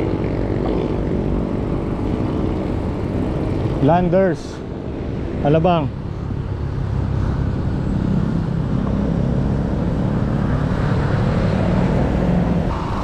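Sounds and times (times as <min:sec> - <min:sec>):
motor traffic passing: 0:00.0 - 0:13.0
wind rush on microphone: 0:00.0 - 0:13.0.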